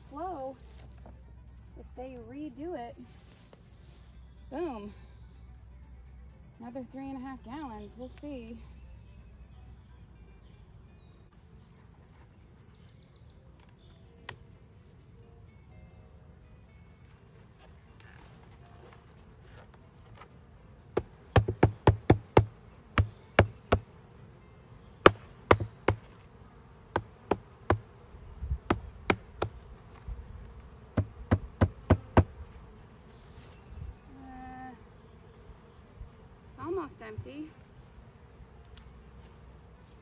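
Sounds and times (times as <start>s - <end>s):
bees humming: 0.0s - 40.0s
wooden hive parts knocking: 21.0s - 23.9s, 25.0s - 26.2s, 26.9s - 27.9s, 28.7s - 29.6s, 31.0s - 32.4s.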